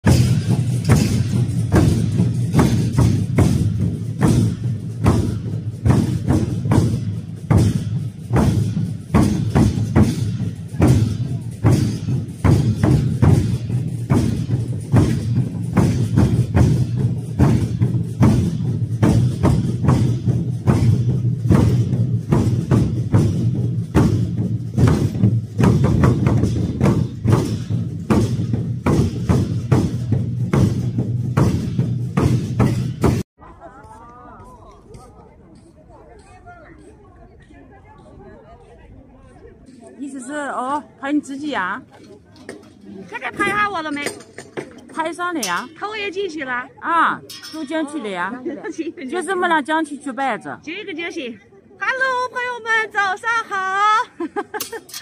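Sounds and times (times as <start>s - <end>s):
barrel drums beaten with sticks: 0.0s - 33.3s, 47.3s - 47.8s.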